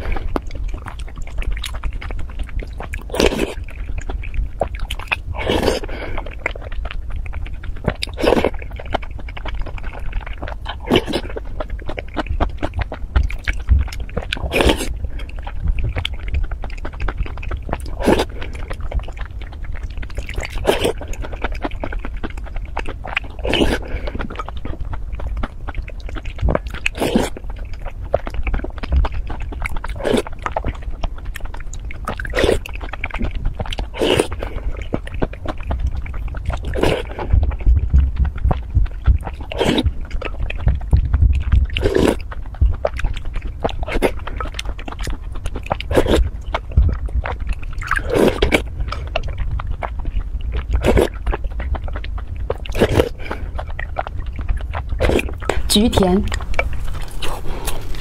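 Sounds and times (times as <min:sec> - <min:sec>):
person chewing: 0:00.0 - 0:58.0
steady low hum: 0:00.0 - 0:58.0
loud bite mouth sounds: 0:04.8 - 0:06.7, 0:09.7 - 0:16.1, 0:16.8 - 0:19.6, 0:20.2 - 0:22.0, 0:23.1 - 0:24.5, 0:25.7 - 0:28.7, 0:32.1 - 0:37.6, 0:38.2 - 0:40.6, 0:41.6 - 0:49.9, 0:50.7 - 0:51.4, 0:52.5 - 0:58.0.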